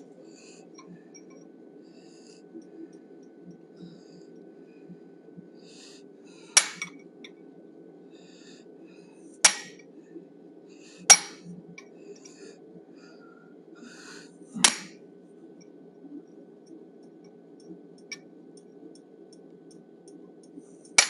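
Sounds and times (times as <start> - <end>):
hammer striking steel tool: 9.4 - 9.7, 11.1 - 11.4.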